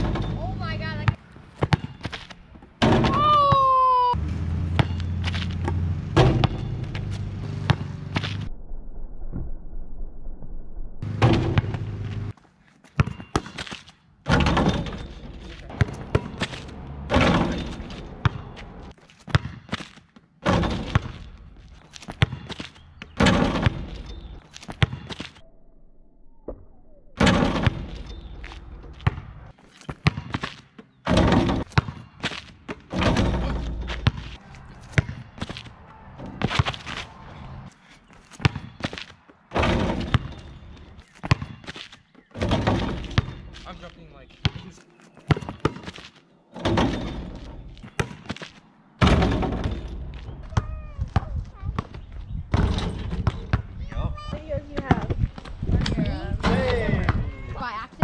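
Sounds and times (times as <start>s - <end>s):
basketball bouncing: 1.0s - 3.8s, 4.7s - 8.4s, 11.0s - 12.3s, 12.9s - 21.4s, 22.0s - 25.4s, 27.2s - 37.1s, 38.3s - 43.6s, 44.4s - 53.8s
rim and backboard slamming: 5.7s - 6.8s, 11.0s - 12.0s, 17.0s - 18.4s, 23.2s - 23.9s, 27.2s - 27.9s, 31.1s - 31.7s, 32.9s - 34.2s, 39.5s - 40.4s, 49.0s - 50.0s.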